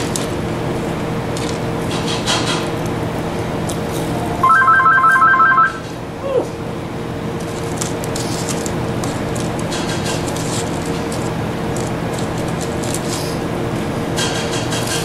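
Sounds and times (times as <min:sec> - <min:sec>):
telephone ringing: 0:04.4 - 0:05.8.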